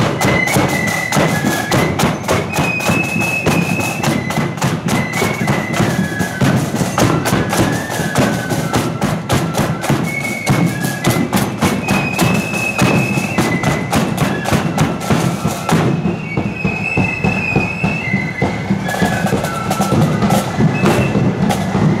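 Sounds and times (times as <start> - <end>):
flute melody: 0.0 - 22.0
rapid snare drumming: 0.0 - 22.0.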